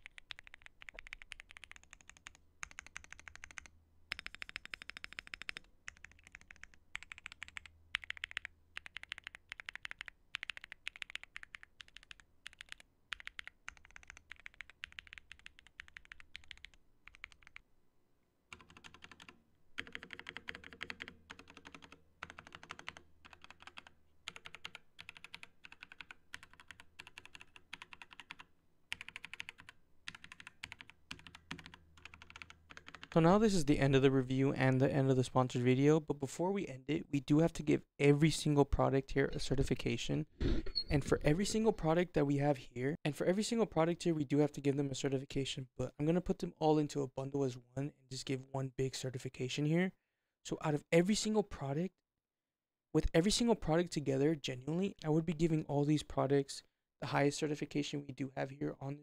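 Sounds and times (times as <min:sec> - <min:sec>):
fuller lower keyboard clacks: 0:00.0 - 0:17.6, 0:18.5 - 0:33.6
mechanical keyboard typing: 0:00.0 - 0:17.6, 0:18.5 - 0:33.2.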